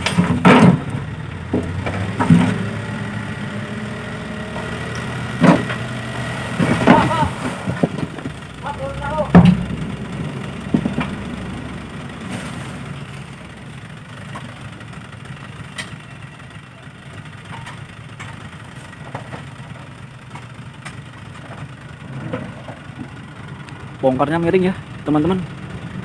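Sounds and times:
rocks and soil knocking: 0.0 - 2.7, 4.6 - 8.6, 9.2 - 14.7
diesel engine running: 0.0 - 26.0.

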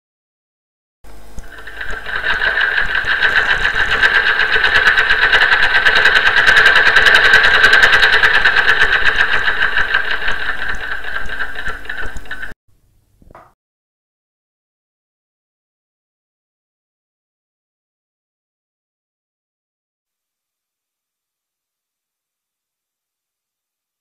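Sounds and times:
sewing machine running: 1.1 - 12.6.

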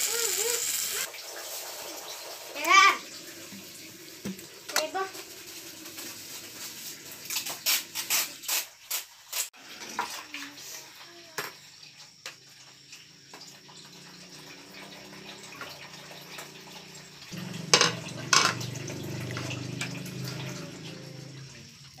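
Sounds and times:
tableware knocking: 17.7 - 18.6.

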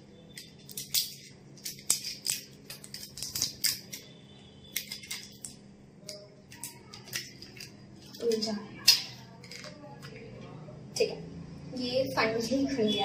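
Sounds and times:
packet crinkling: 0.6 - 4.1.

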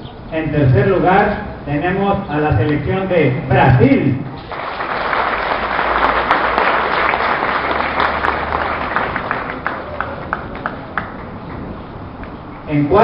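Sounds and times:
crowd applauding: 4.5 - 11.7.

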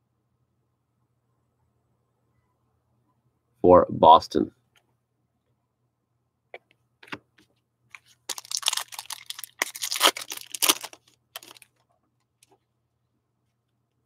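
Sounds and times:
foil wrapper crinkling: 7.9 - 11.8.

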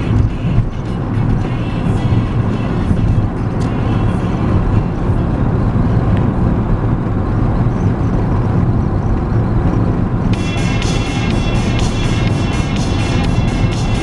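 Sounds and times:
music: 0.0 - 6.1, 10.3 - 14.0
car cabin road and engine rumble: 0.0 - 14.0.

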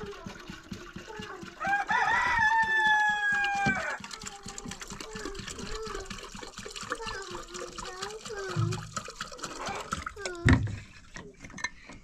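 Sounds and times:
rooster crowing: 1.6 - 4.0.

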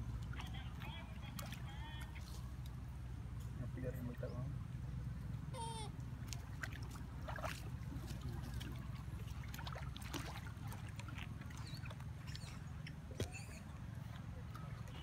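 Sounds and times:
short pitched animal call: 5.5 - 5.9
monkeys splashing in water: 5.6 - 15.0.

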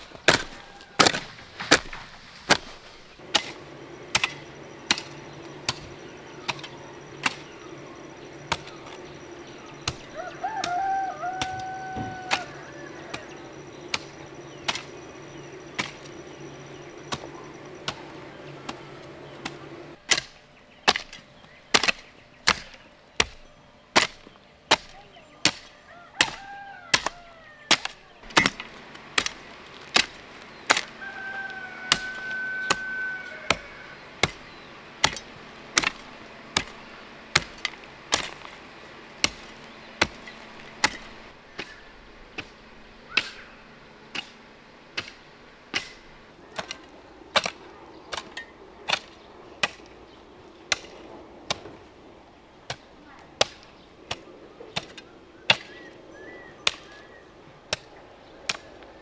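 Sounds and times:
tool chopping wood: 0.0 - 7.5, 19.4 - 23.4, 24.0 - 31.0, 33.5 - 38.6, 39.2 - 41.8, 45.0 - 49.9, 50.7 - 51.8, 52.7 - 55.8, 56.6 - 57.0
rooster crowing: 0.3 - 1.5, 3.8 - 20.0, 25.8 - 28.2, 30.7 - 34.3.

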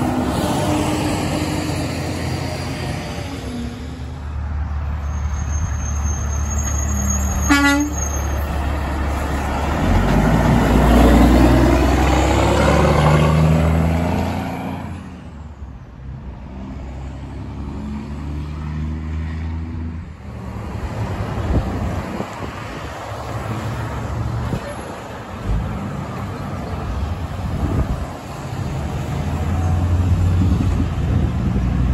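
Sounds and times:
diesel truck passing by: 0.0 - 31.9
truck air horn blast: 7.2 - 8.3.

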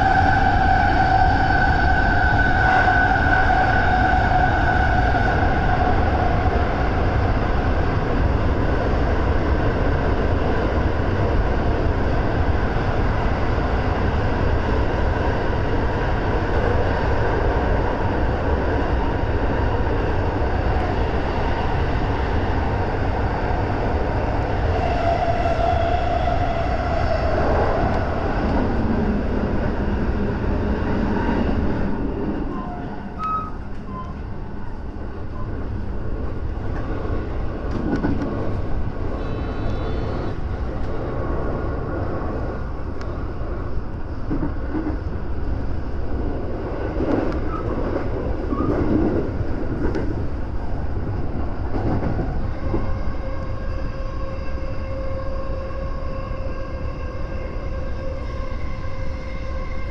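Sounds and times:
train rail and wheel noise: 0.0 - 59.9
train whine: 0.0 - 59.9.

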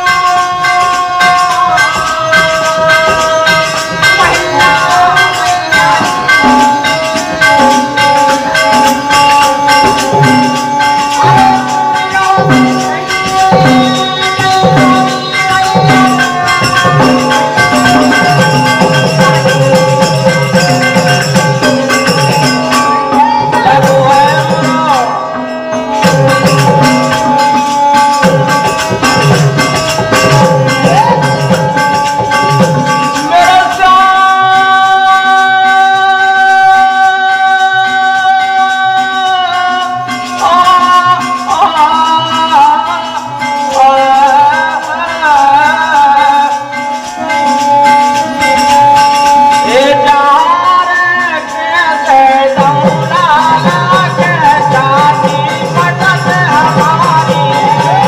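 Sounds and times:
hand drum beat: 0.0 - 36.2, 52.3 - 58.0
harmonium melody: 0.0 - 58.0
jingling percussion: 0.0 - 58.0.

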